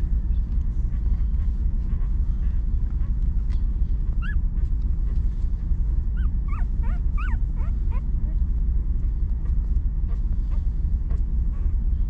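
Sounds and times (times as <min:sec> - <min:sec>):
low rumble: 0:00.0 - 0:12.0
puppy whimpering: 0:04.1 - 0:04.4, 0:06.1 - 0:08.4.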